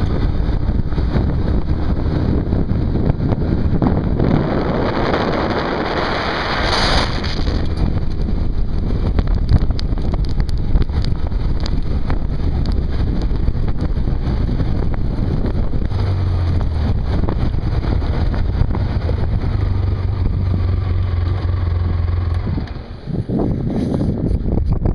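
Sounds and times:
atv engine running: 0.0s - 24.9s
wind noise on microphone: 0.0s - 24.9s
tyres on gravel: 6.0s - 23.3s.

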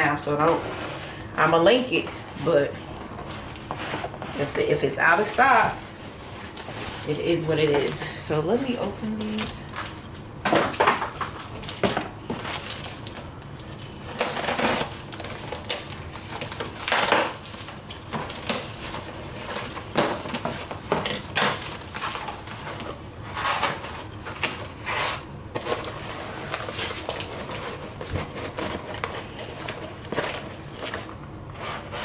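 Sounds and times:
cardboard boxes scraping: 18.7s - 32.0s.

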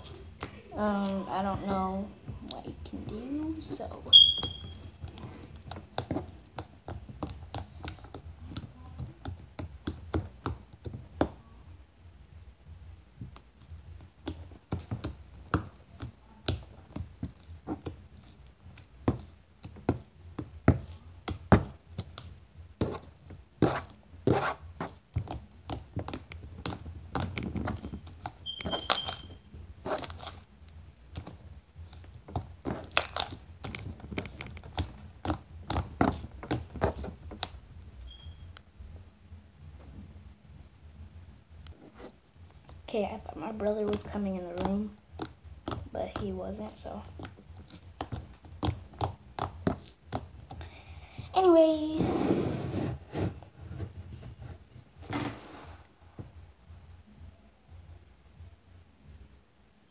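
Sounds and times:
high squeak: 4.1s - 4.8s, 28.4s - 29.4s.

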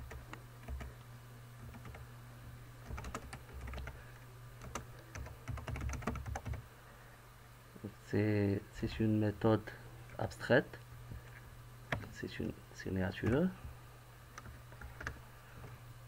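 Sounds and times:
computer keyboard typing: 0.0s - 0.9s, 1.7s - 2.0s, 2.8s - 4.0s, 4.6s - 6.6s, 14.4s - 15.2s
steady low hum: 0.0s - 16.0s.

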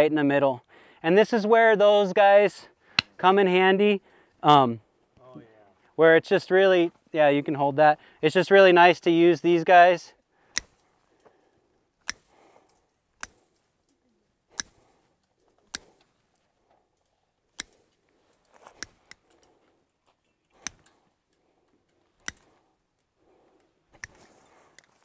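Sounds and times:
wire cutters snapping wire: 10.5s - 10.8s, 12.0s - 16.1s, 17.0s - 17.9s, 18.7s - 19.6s, 20.5s - 22.6s, 23.9s - 25.0s.

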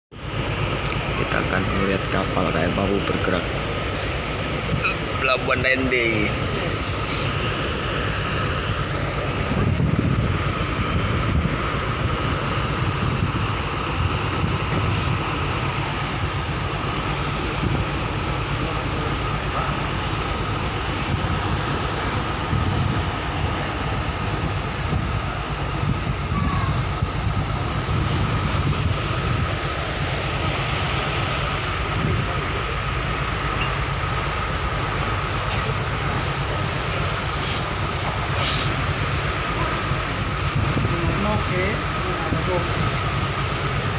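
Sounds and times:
churning water: 0.1s - 43.9s
ship engine low rumble: 0.1s - 43.9s
wind rushing: 6.2s - 16.8s, 20.9s - 32.6s.

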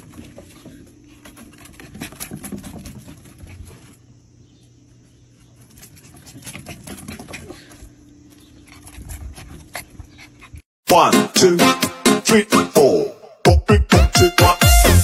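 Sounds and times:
puppy paws pattering on wooden deck: 0.0s - 10.6s.

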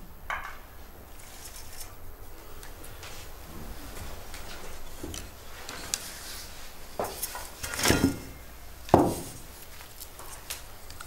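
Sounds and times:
metal bowls knocking and scraping: 7.0s - 9.3s.

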